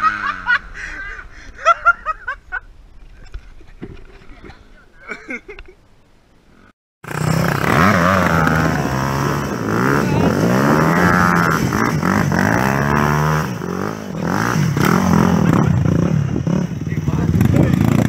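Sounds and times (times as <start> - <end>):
dirt bike engine revving: 7.0 - 18.0.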